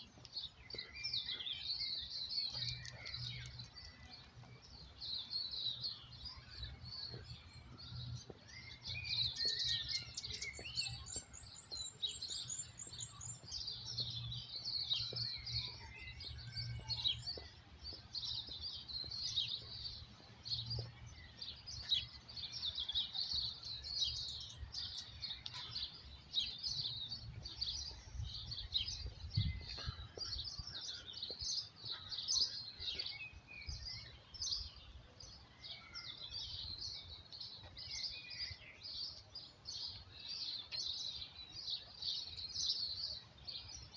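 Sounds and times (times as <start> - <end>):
birds singing and chirping: 0.0 - 43.9.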